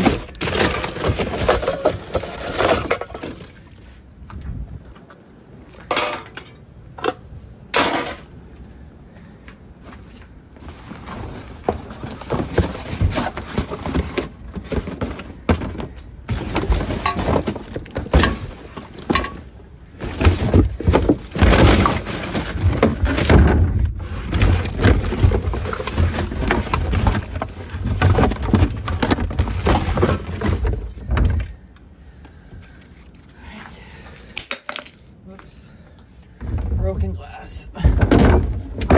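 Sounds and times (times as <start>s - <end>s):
rummaging through trash: 0.0s - 4.1s, 5.8s - 8.3s, 9.9s - 31.7s, 37.7s - 38.9s.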